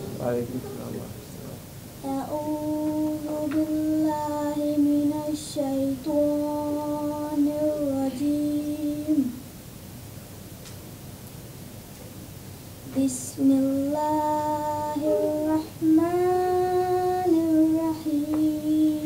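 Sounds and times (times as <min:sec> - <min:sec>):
woman chanting melodically: 0:02.0 - 0:09.4, 0:12.9 - 0:19.0.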